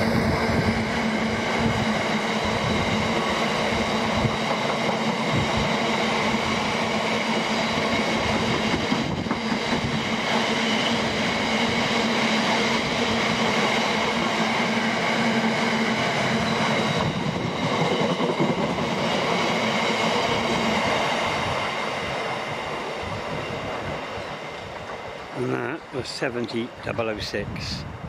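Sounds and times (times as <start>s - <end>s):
freight train wheels clattering: 0.0s - 21.0s.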